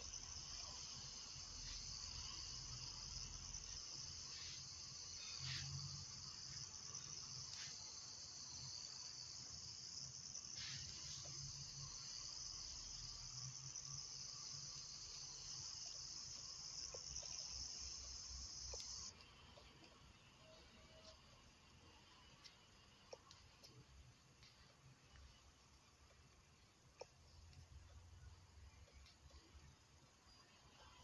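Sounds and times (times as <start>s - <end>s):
crickets trilling: 0.0s - 31.0s
faint clicks: 16.8s - 21.3s, 22.0s - 28.0s.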